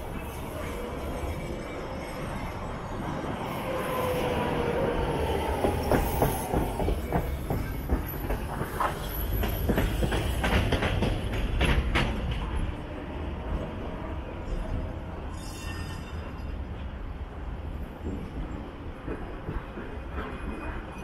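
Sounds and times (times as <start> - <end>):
tram running on rails: 0.0 - 21.0
wheels clacking over rail joints: 5.3 - 12.7.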